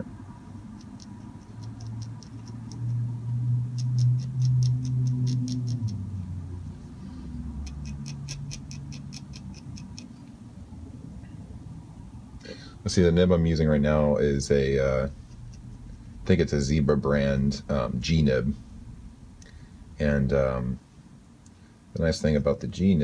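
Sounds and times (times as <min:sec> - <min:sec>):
low droning hum: 0:00.0 - 0:23.0
pen scratching on paper: 0:07.7 - 0:10.1.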